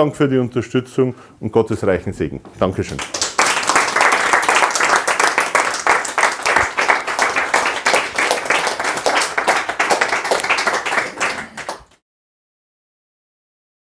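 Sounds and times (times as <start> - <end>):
people applauding: 2.9 - 12.0.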